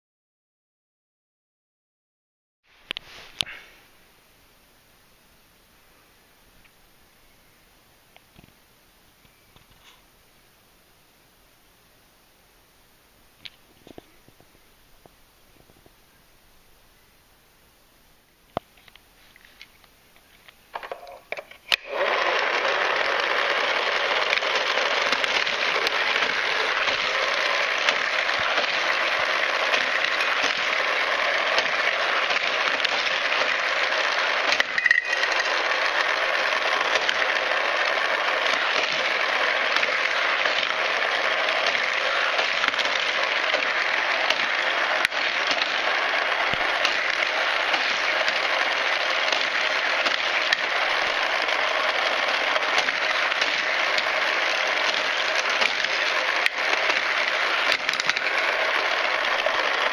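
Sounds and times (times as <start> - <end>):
toy cars rattling on plastic track: 20.7 - 59.9
toy track boosters whirring: 20.7 - 59.9.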